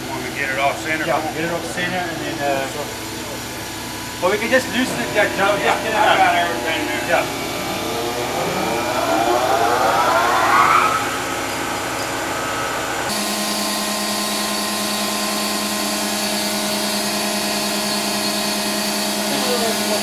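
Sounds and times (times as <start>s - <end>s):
hydraulic pump whine and hum: 0.0s - 20.0s.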